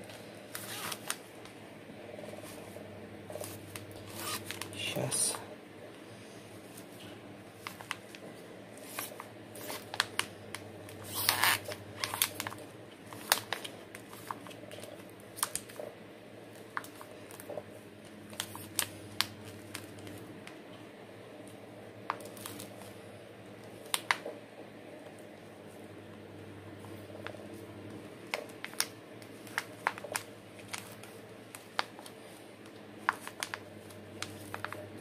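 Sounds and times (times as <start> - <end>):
plastic cup crackling: 0.0 - 1.6, 3.3 - 5.3, 7.6 - 15.9, 27.0 - 35.0
faint steady hum: 0.0 - 35.0.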